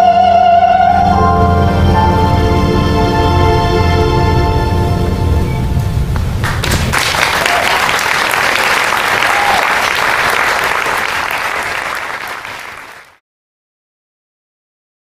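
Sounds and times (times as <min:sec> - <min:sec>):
audience applause: 0:06.4 - 0:13.2.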